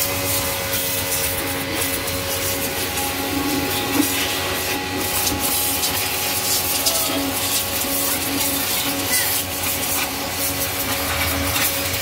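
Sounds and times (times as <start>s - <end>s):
pressure washer motor hum: 0.0s - 12.0s
water spray hissing on metal: 0.0s - 12.0s.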